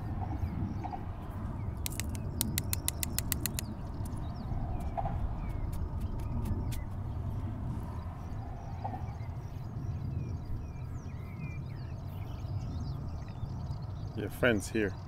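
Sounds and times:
bird chirps: 1.7s - 7.4s
sharp clicks: 1.8s - 4.2s.

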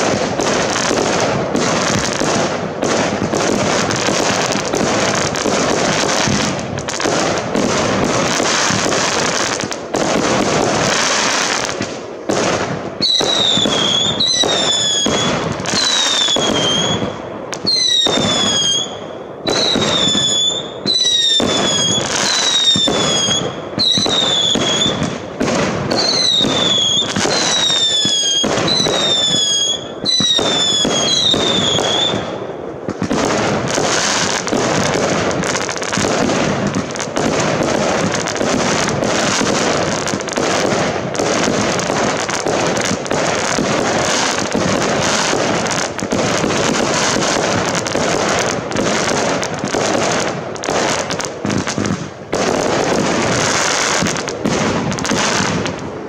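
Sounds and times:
fireworks banging and crackling: 0.0s - 56.0s
whistling firework shots: 0.0s - 56.0s.

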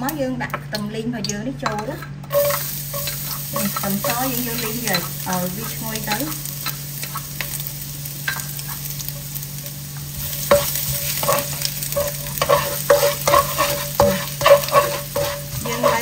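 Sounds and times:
spatula scraping a pan: 2.3s - 7.6s, 10.1s - 16.0s
garlic sizzling in hot oil: 2.3s - 16.0s.

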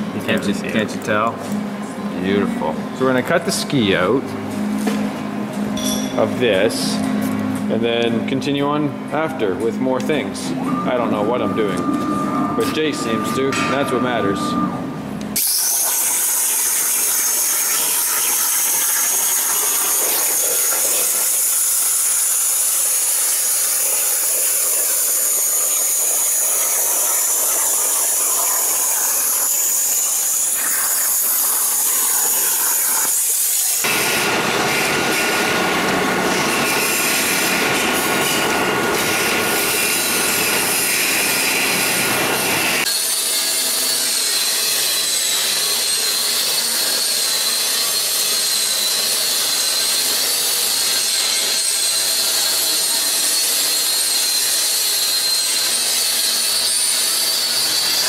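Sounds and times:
steady machine noise: 0.0s - 58.0s
plasma cutter hissing and whining: 15.4s - 58.0s.

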